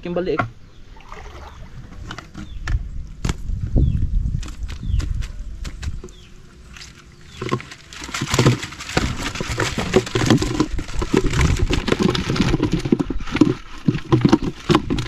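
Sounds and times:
water splashing: 0:00.3 - 0:01.9
fish flapping: 0:04.4 - 0:15.0
net rustling: 0:04.4 - 0:15.0.

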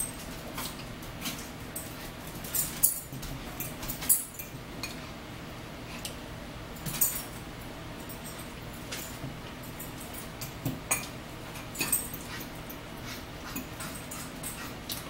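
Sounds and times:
forks clinking on bowls: 0:00.0 - 0:05.1, 0:06.8 - 0:07.4, 0:08.0 - 0:15.0
chewing salad: 0:09.8 - 0:15.0.

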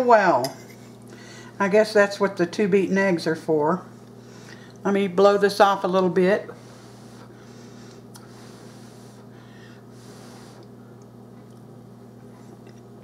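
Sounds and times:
steady low hum: 0:00.0 - 0:13.0
person blowing on food: 0:08.2 - 0:10.7.

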